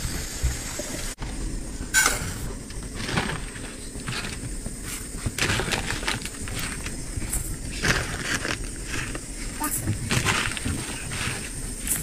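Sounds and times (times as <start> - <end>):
plastic sack rustling: 2.8 - 12.0.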